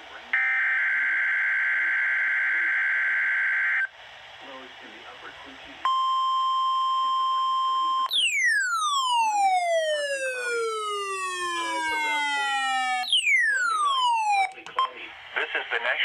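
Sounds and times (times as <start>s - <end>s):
steady warning alarm tone: 5.9s - 14.6s
falling siren sweep: 8.1s - 14.6s.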